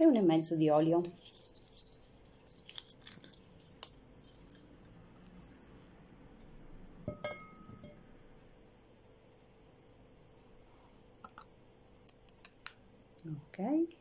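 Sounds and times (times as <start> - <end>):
glass bottle clink: 7.1 - 8.0.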